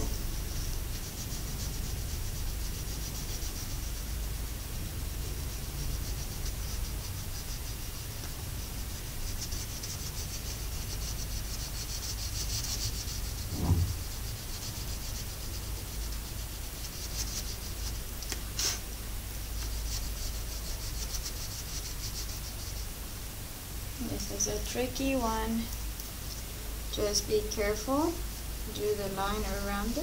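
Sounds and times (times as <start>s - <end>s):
wax crayon scratching on paper: 0.0s - 4.2s, 5.2s - 18.8s, 19.5s - 22.8s
thump: 13.5s - 14.0s.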